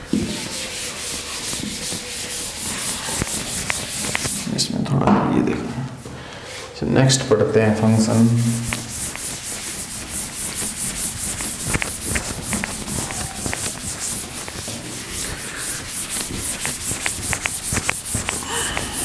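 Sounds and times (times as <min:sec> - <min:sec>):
duster scrubbing blackboard: 0:00.0 - 0:04.6, 0:07.8 - 0:19.0
duster tapping board: 0:00.1 - 0:04.5, 0:08.4 - 0:19.0.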